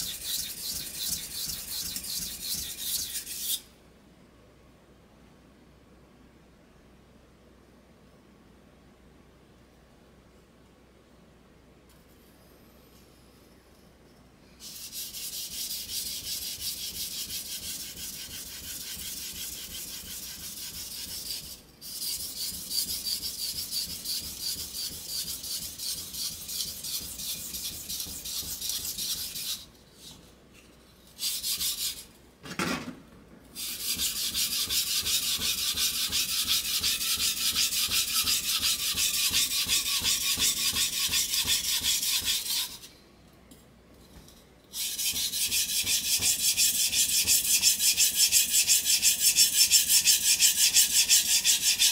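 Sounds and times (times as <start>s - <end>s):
knife sharpening on whetstone: 0.0s - 3.6s, 14.6s - 29.6s.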